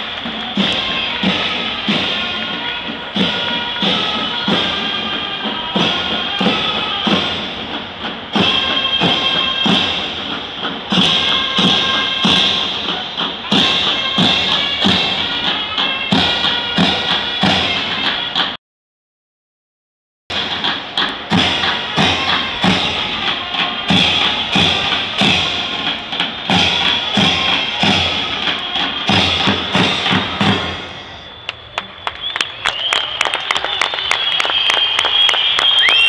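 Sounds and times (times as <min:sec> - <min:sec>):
big drums march beat: 0:00.0 - 0:18.6, 0:20.3 - 0:36.0
wind instrument melody: 0:00.0 - 0:18.6, 0:20.3 - 0:32.1.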